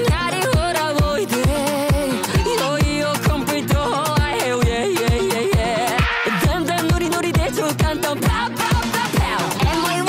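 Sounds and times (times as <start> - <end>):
electronic dance pop song: 0.0 - 10.0.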